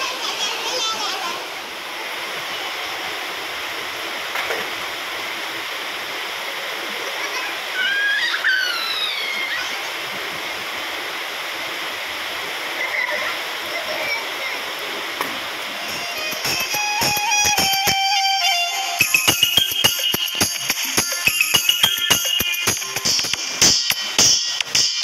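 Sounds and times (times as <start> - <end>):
rain on tiled roof: 0.0 - 18.7
high gliding call: 15.8 - 20.0.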